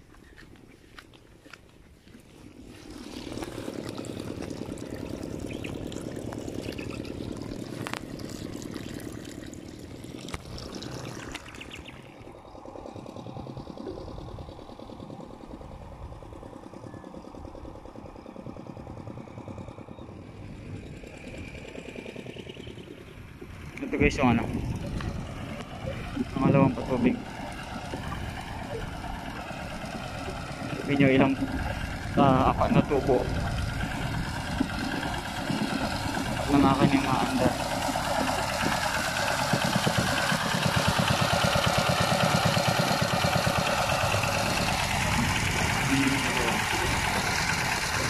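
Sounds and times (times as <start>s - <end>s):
water flowing: 2.2s - 14.8s, 23.3s - 48.0s.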